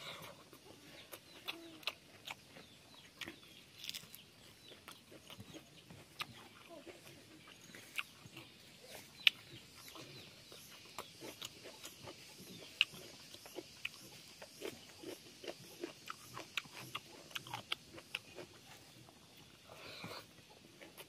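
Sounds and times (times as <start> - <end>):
person chewing food: 0.0 - 21.0.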